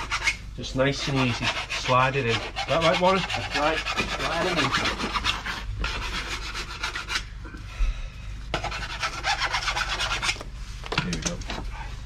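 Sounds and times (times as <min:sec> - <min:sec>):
hand file rasping on plastic pipe: 0:00.0 - 0:07.3, 0:08.5 - 0:10.4.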